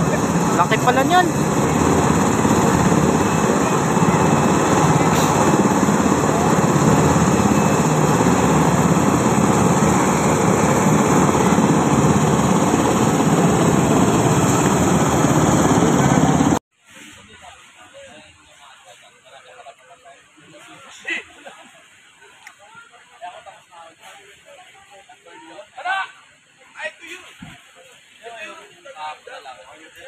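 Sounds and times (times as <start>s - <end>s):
helicopter engine and rotor: 0.0s - 16.6s.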